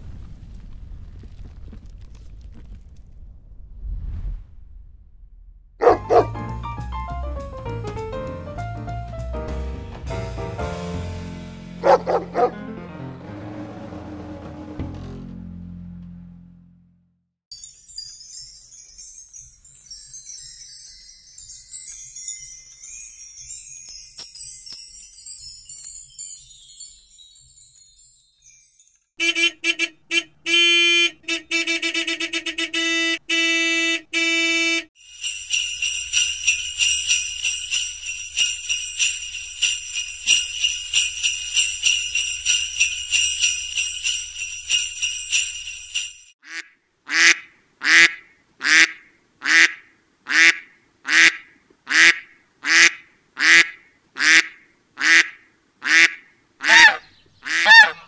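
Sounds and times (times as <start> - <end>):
sleigh bells jingling: 5.8 - 6.3, 11.8 - 12.5, 17.5 - 29.2, 35.0 - 46.4
wind chimes tinkling: 17.5 - 29.2, 35.0 - 46.4
ducks quacking: 46.4 - 58.0.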